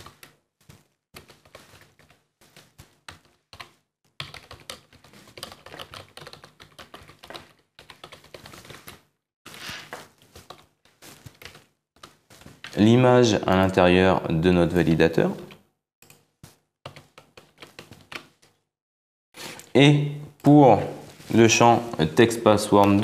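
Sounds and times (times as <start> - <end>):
typing on computer keyboard: 3.1 - 9.1, 16.0 - 18.6.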